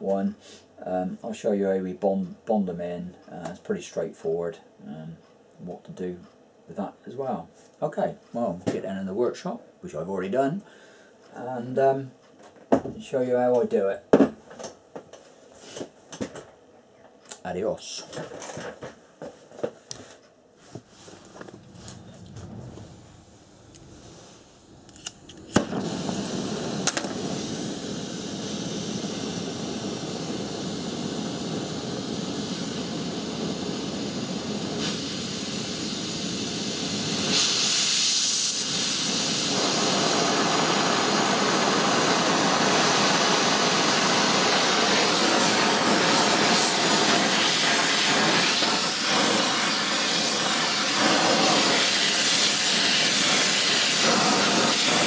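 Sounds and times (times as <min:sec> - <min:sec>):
torch flame hissing: 0:20.7 - 0:55.0
welding torch lighting pop: 0:24.9 - 0:55.0.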